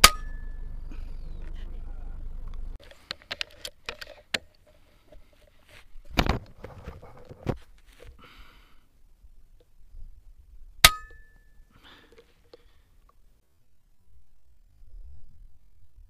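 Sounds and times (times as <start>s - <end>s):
short rustle: 2.7s - 8.3s.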